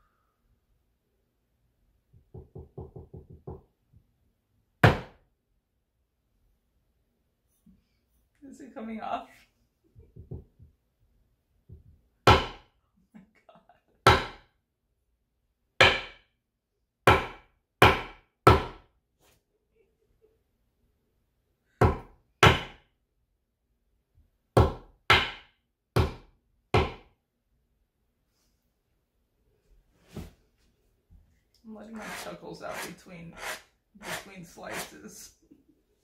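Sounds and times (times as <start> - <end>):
knife chopping on a cutting board: 12.3 - 12.6, 15.8 - 16.2, 17.1 - 18.8, 21.8 - 22.8, 24.6 - 27.1.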